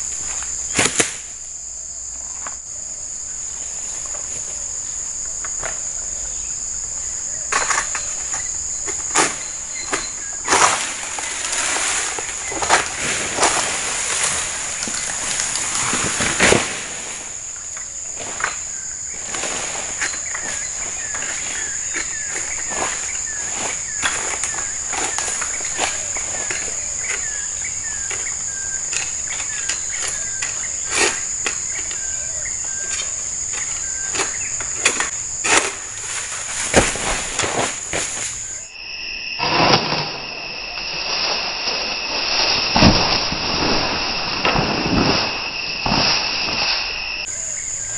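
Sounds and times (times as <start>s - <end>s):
high insect drone: 0.0s - 47.9s
sickle cutting palm fronds: 0.1s - 1.4s, 7.5s - 38.6s, 39.4s - 47.3s.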